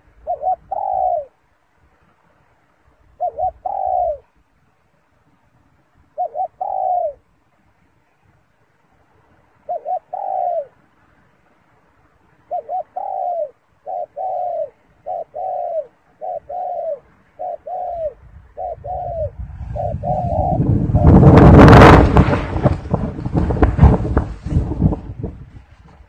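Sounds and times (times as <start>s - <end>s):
dove cooing: 0.0s - 1.4s, 3.2s - 4.4s, 6.1s - 7.3s, 9.6s - 10.8s, 12.4s - 21.9s.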